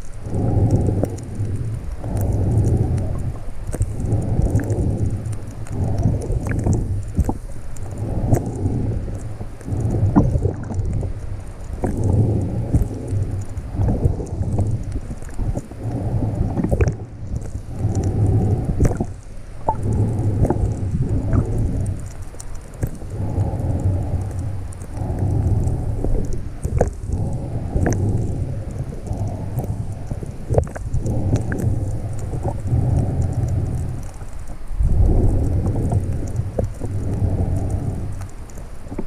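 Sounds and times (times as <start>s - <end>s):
muffled rush of water: 0.0s - 39.0s
breathing through snorkel mask: 11.7s - 22.2s, 22.8s - 38.4s.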